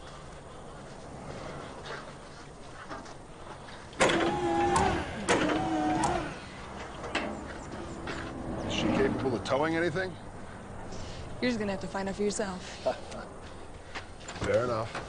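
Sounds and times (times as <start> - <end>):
winch motor whining: 4.0 - 8.0.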